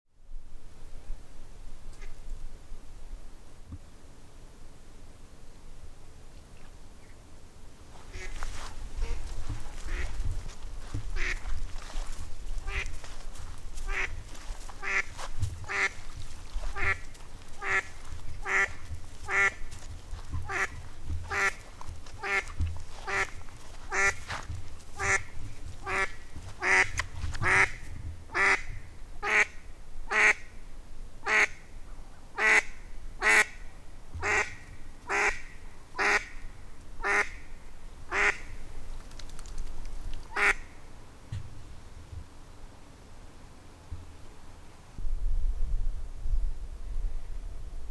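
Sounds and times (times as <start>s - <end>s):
duck quacking: 8.1s - 8.4s, 9.0s - 10.2s, 11.2s - 11.5s, 12.6s - 13.0s, 13.8s - 14.2s, 14.8s - 16.0s, 16.6s - 17.0s, 17.6s - 19.7s, 20.4s - 21.6s, 22.2s - 24.3s, 25.0s - 30.5s, 31.2s - 31.6s, 32.4s - 33.6s, 34.2s - 36.4s, 37.0s - 37.4s, 38.1s - 38.5s, 40.3s - 40.7s.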